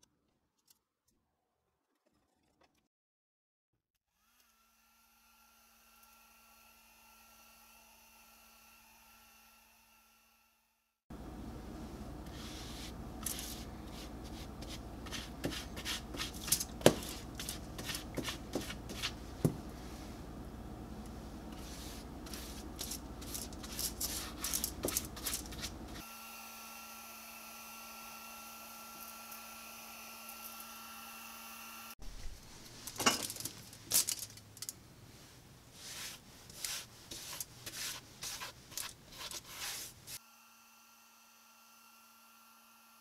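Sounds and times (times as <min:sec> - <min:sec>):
steady hum: 0:11.1 - 0:26.0.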